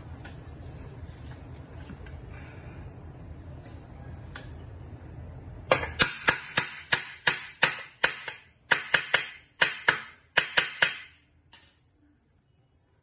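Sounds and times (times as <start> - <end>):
hammer striking metal: 5.7 - 11.7.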